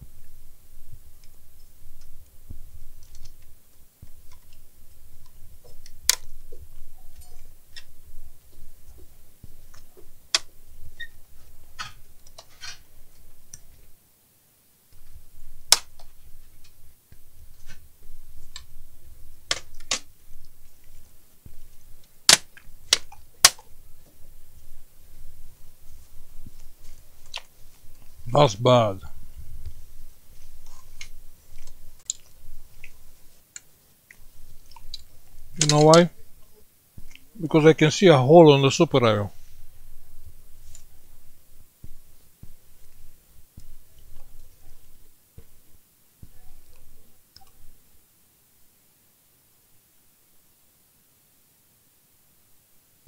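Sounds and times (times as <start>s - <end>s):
plastic laptop parts clicking: 19.5s - 20.1s.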